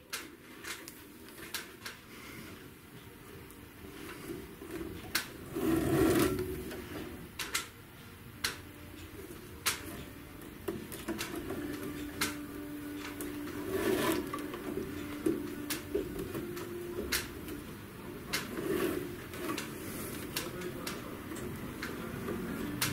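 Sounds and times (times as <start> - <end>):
rubbing scrapes: 13.5 - 14.3, 18.5 - 20.2.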